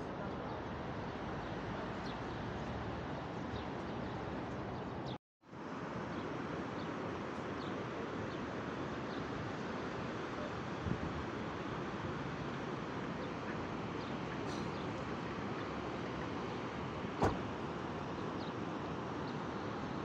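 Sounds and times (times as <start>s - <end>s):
outdoor background noise: 0.0s - 20.0s.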